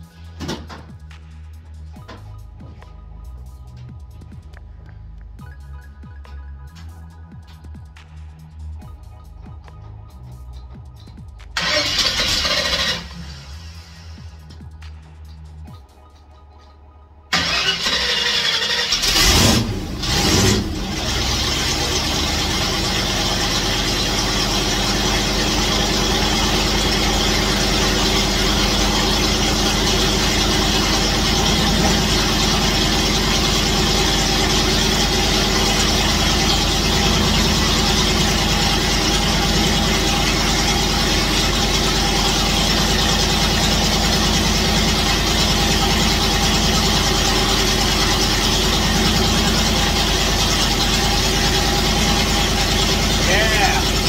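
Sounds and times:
car engine idling: 10.0 - 15.7, 17.2 - 54.0.

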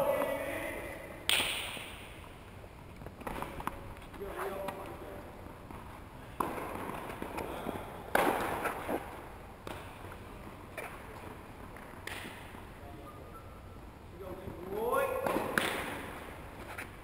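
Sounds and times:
tennis ball pops off rackets: 12.0 - 12.4.

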